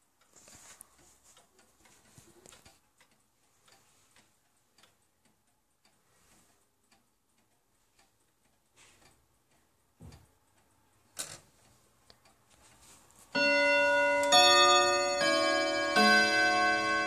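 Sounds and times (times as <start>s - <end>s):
clock hand clicks: 0.0s - 12.8s
wall clock ticking faintly: 0.0s - 17.0s
clock striking the hour: 13.2s - 17.0s.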